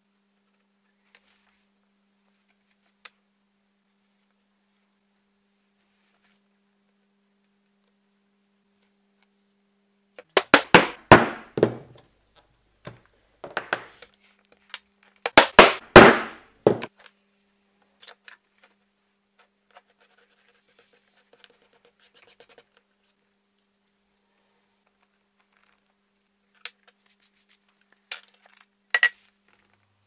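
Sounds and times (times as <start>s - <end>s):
mallet striking stamping tool: 10.4s - 11.9s, 15.3s - 16.9s.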